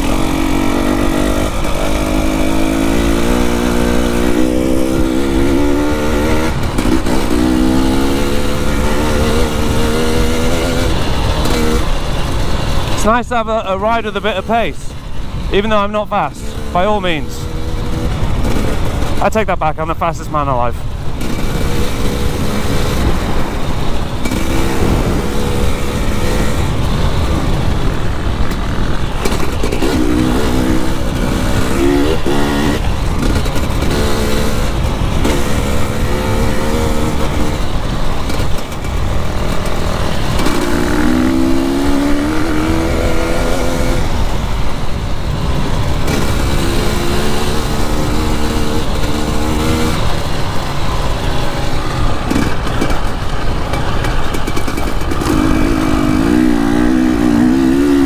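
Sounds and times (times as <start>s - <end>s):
dirt bike engine revving: 0.0s - 58.0s
wind buffeting microphone: 20.8s - 58.0s.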